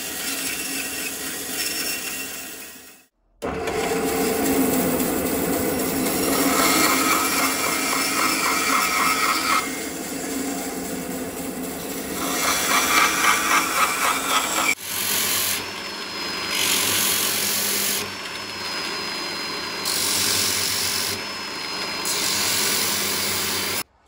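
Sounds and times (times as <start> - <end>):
angle grinder running: 0.0 - 23.9
band saw cutting wood: 0.0 - 23.9
wood sanding hiss: 6.1 - 15.6.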